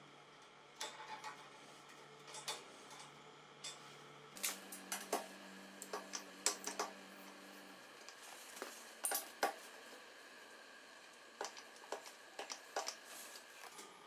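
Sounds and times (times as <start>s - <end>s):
metallic clicks of steel parts: 2.2s - 3.8s.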